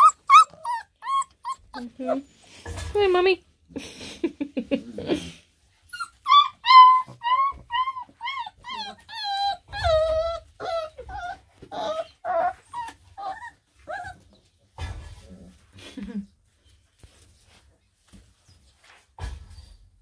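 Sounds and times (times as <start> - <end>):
puppies whining and yelping: 0.0 - 2.6, 5.8 - 14.6.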